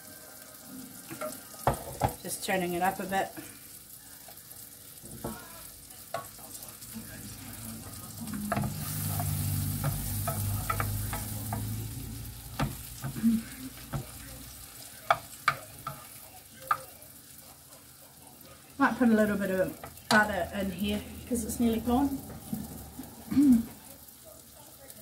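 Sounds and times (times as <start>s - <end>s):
mushrooms sizzling in a frying pan: 0.0s - 25.0s
wooden spoon stirring: 5.0s - 17.0s
spoon tapping pans: 6.1s - 6.5s, 8.2s - 14.3s.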